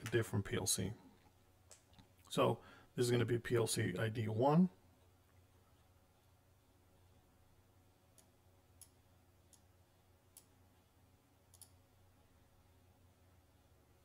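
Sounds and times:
computer mouse clicks: 0:11.5 - 0:11.8.

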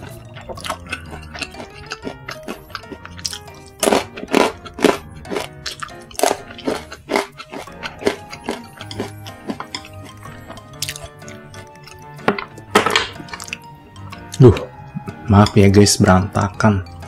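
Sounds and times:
crunchy chewing: 0:00.0 - 0:12.2, 0:13.2 - 0:13.6
background music: 0:00.0 - 0:17.0.

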